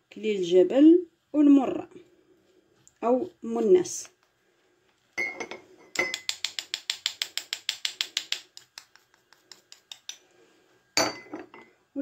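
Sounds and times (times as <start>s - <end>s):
spoon clinking glass cup: 5.2s - 6.3s, 11.0s - 11.7s.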